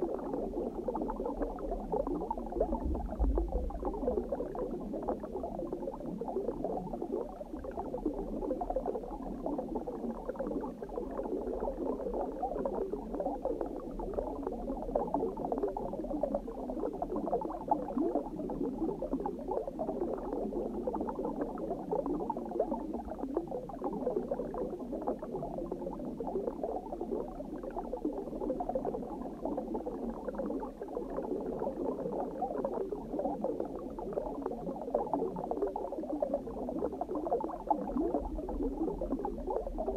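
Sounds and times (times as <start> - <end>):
low underwater rumble: 0.0 - 10.1, 35.9 - 39.9
water bubbling and gurgling: 0.0 - 39.9.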